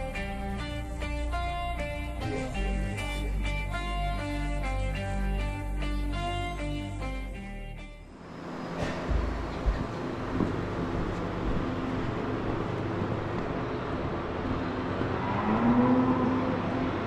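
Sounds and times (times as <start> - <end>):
ventilation fans: 0.0 - 17.0
cow mooing: 15.2 - 16.8.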